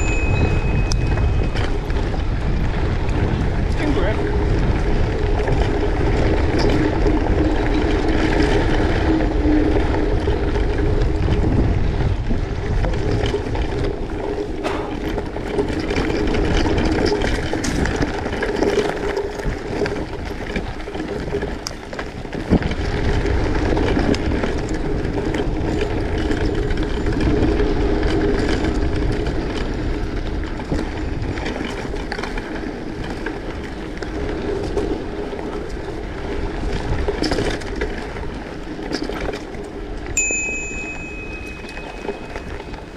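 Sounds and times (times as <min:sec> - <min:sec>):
vehicle rumbling in motion: 0:00.0 - 0:42.9
sharp knocks and rattles: 0:12.8 - 0:20.7.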